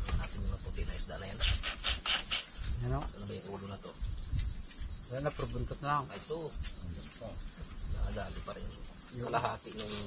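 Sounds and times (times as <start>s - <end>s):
insect chorus buzzing: 0.0s - 10.0s.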